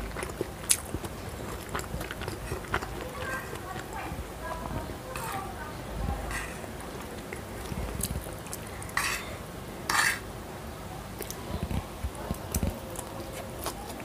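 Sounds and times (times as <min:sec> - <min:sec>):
metal fork scraping and clicking: 0:09.9 - 0:10.2.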